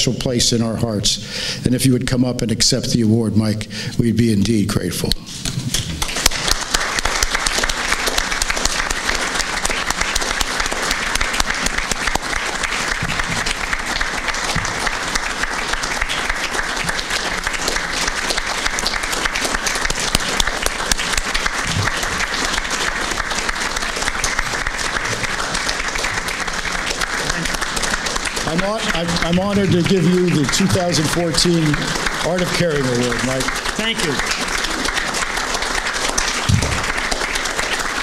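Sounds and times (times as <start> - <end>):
audience applauding: 5.7 - 38.0.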